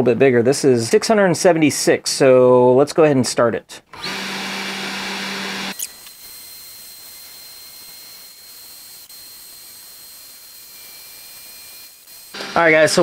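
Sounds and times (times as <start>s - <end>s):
router spindle hiss and whine: 4.0s - 13.0s.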